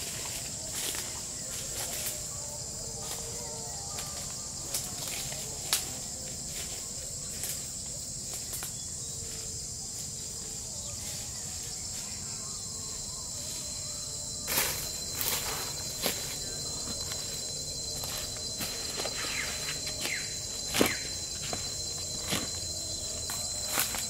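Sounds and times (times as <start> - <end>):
high-pitched insect chorus: 0.0 - 24.0
footsteps on dry leaves: 14.5 - 24.0.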